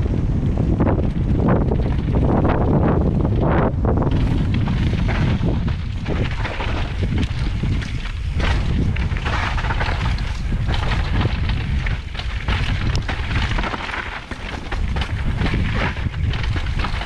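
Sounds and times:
bike rumbling and rattling: 0.0 - 17.0
wind buffeting microphone: 0.0 - 17.0
knocks over stones: 4.0 - 17.0.

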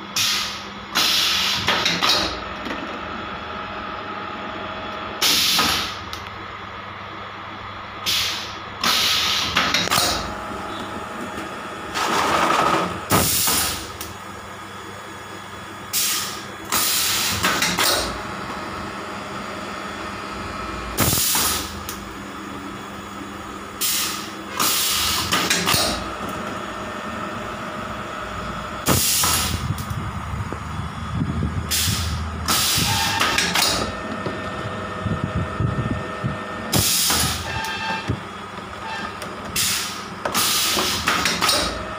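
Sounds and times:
moulding machine humming: 0.0 - 41.9
compressed air hissing blasts: 0.2 - 1.7, 8.0 - 9.7, 23.8 - 25.9, 28.8 - 29.8, 31.7 - 33.8, 39.6 - 41.2.

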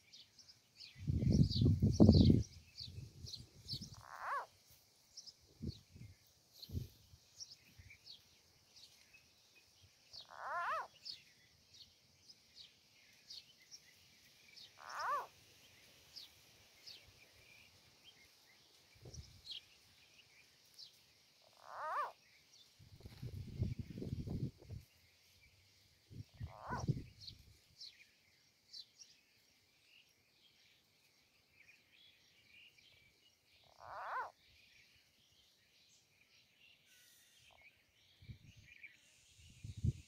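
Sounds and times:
frog distress cries: 4.0 - 4.5, 10.2 - 10.9, 14.8 - 15.3, 21.5 - 22.2, 26.4 - 26.9, 33.7 - 34.4
faint high chirps: 36.8 - 40.0.

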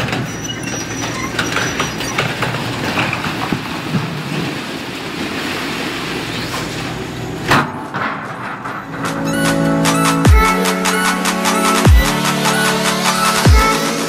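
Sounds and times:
metal scraping and squealing: 0.0 - 3.4, 6.3 - 14.0
falling concrete crashes: 0.0 - 10.2
excavator engine hum: 0.0 - 14.0.

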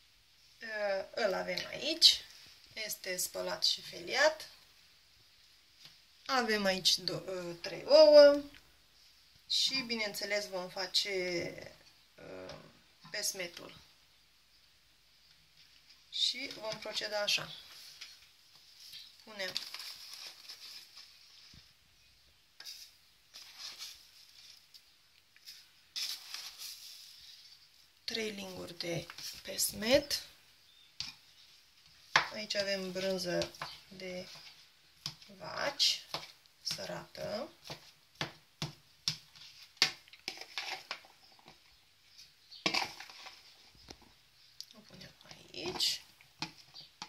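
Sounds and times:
paper bag rustling: 17.8 - 21.7, 22.7 - 24.7, 25.4 - 27.6
spoon scooping crumbs into plastic bowl: 22.6 - 24.8, 37.6 - 44.0.

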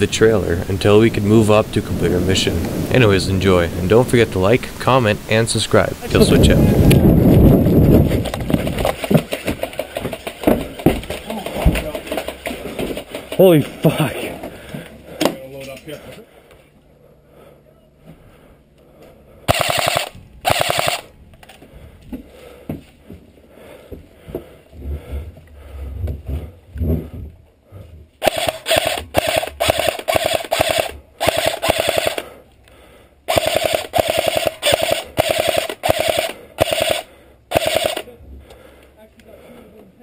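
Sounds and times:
airsoft rifle firing in bursts: 19.5 - 21.1, 28.2 - 32.3, 33.3 - 38.1.

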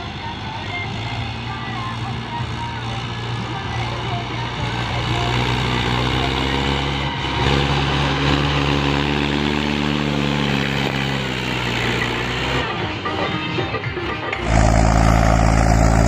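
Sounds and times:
tractor diesel engine: 0.0 - 16.0.

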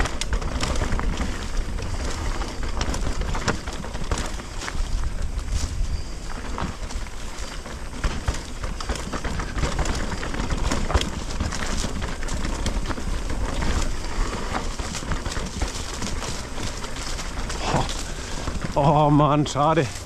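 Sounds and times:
bike rattling and knocking: 0.0 - 20.0
bike tyres rolling over dirt: 0.0 - 20.0
wind rumble on microphone: 0.0 - 20.0
brushing through plants: 11.3 - 20.0.

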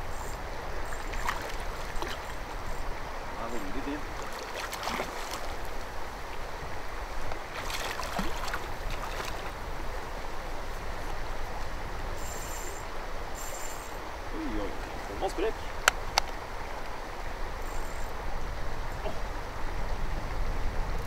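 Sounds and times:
wind: 0.0 - 21.0
lapping water: 3.4 - 5.7
fish splashing at surface: 4.2 - 5.6.

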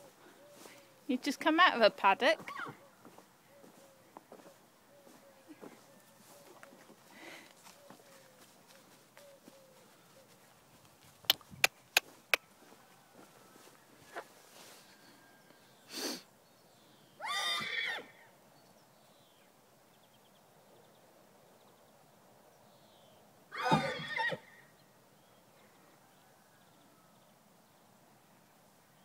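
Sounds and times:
horse neighing: 17.2 - 18.2, 23.5 - 24.6.

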